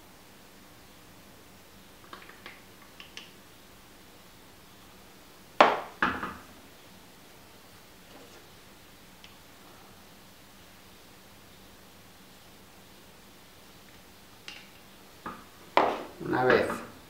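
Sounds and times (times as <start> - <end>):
faint clicks and taps: 2.0 - 3.4
plastic syringe knocking on workbench: 5.6 - 6.4.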